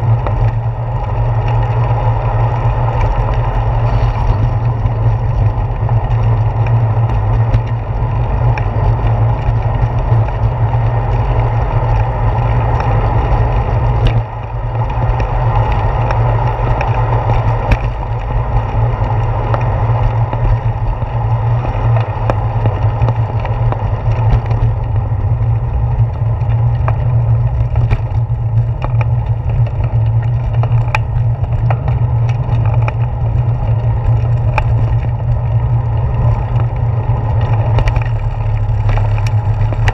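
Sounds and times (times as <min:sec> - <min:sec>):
sharp clicks and knocks: 0:00.0 - 0:39.9
tyres rolling on pavement: 0:00.0 - 0:39.9
wind rumble on microphone: 0:00.0 - 0:39.9.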